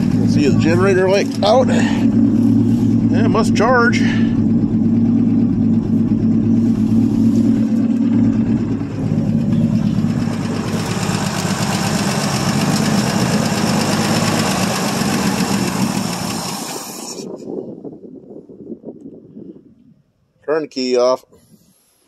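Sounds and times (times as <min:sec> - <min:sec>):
truck engine idling: 0:00.0 - 0:17.6.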